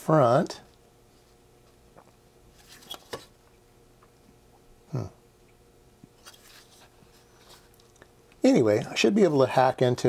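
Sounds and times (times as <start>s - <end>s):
man murmuring: 4.9s - 5.2s.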